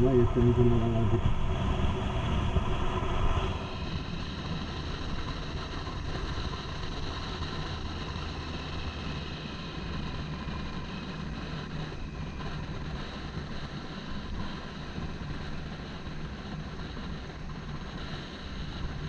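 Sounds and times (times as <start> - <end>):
wind noise: 0.0 - 19.0.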